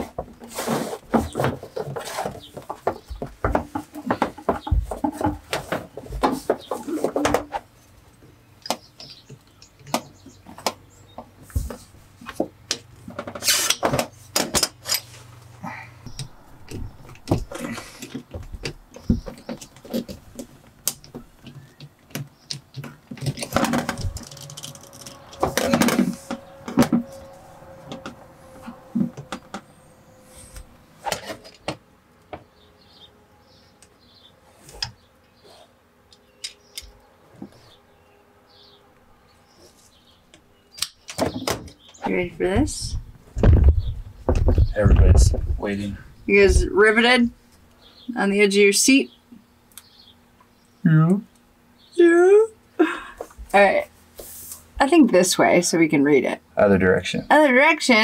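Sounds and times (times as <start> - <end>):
tubing scraping on metal floor: 0.0 - 2.6, 23.3 - 31.5.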